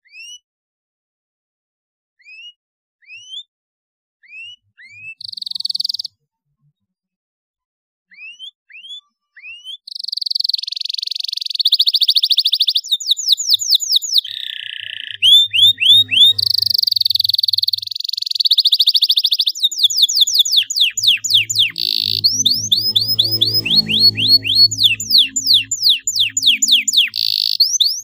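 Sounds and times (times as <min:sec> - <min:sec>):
canary singing: 0:08.1 - 0:28.0.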